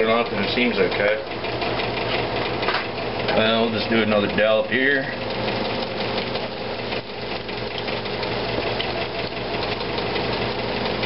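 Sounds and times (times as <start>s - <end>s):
potato cakes sizzling in oil: 5.9s - 11.0s.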